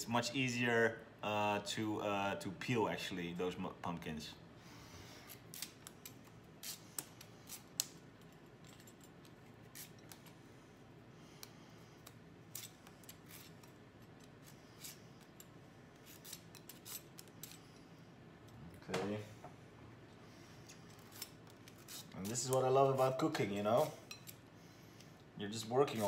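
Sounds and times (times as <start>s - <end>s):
knife clicking and scraping: 5.3s - 10.4s, 11.4s - 17.8s, 20.7s - 22.7s, 23.8s - 24.4s.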